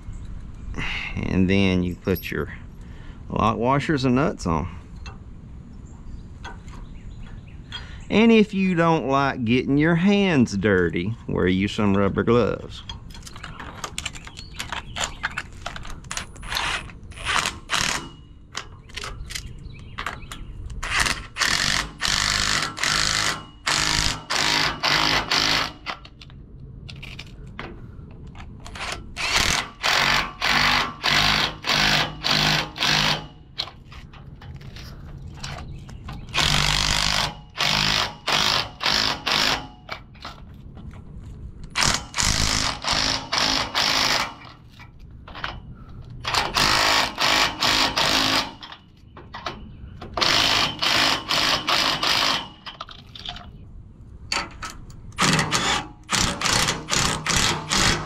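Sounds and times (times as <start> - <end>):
cordless power tool bursts: 16.5 - 18.2, 20.8 - 26.0, 28.8 - 33.4, 36.3 - 39.9, 41.8 - 44.5, 46.2 - 48.8, 50.1 - 52.8, 55.2 - 58.0.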